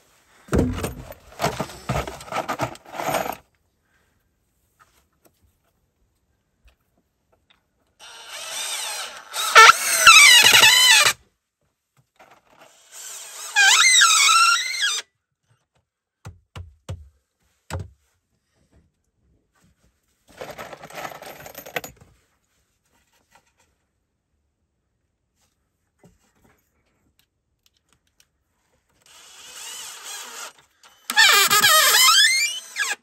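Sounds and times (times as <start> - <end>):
rustling and scraping: 0.0 - 3.5, 19.5 - 24.0
dull wooden knocks: 0.5 - 2.2.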